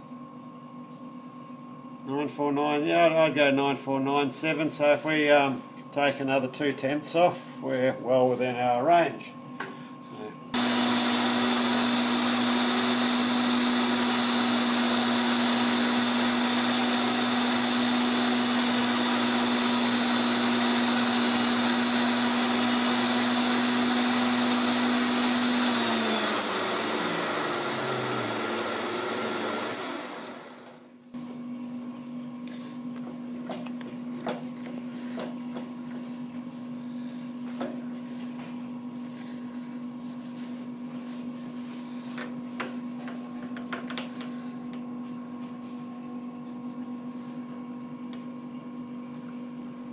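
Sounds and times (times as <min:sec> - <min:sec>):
quiet machine hum: 0:00.0 - 0:10.6, 0:25.7 - 0:49.9
grinder spinning down: 0:10.6 - 0:30.8
grinder motor hum with hiss: 0:10.6 - 0:30.9.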